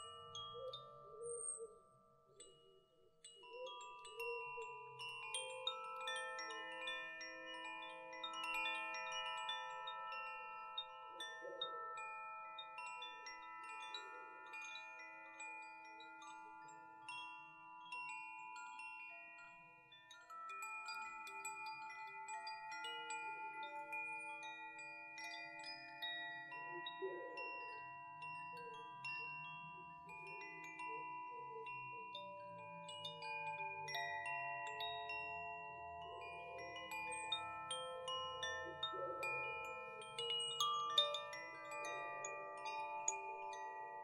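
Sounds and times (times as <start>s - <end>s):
wind chimes ringing: 0.0s - 44.0s.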